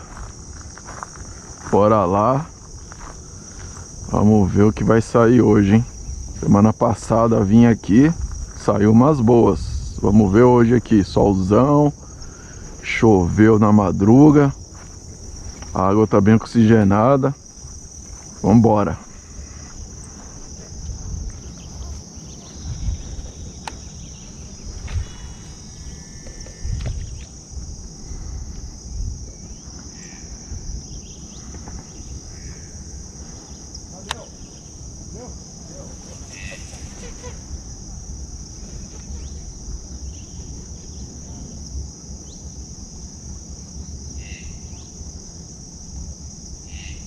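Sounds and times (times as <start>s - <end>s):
insects droning: 0.0s - 47.0s
low rumbling: 2.6s - 36.3s.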